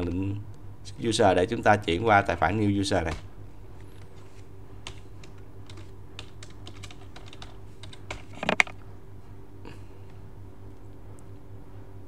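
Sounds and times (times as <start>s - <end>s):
keyboard typing: 4.8s - 8.7s.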